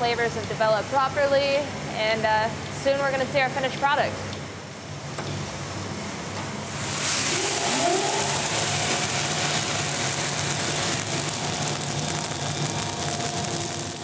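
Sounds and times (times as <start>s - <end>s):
coffee roaster running: 4.8s - 14.0s
rush of pouring beans: 6.7s - 14.0s.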